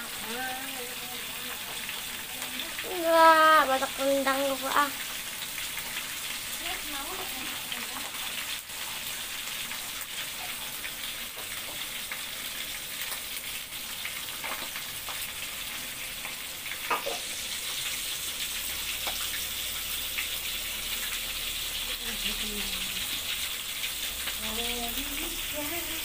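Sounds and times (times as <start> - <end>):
meat sizzling in hot oil: 0.0 - 26.0
crackling pops of oil: 16.2 - 17.3, 19.0 - 19.4.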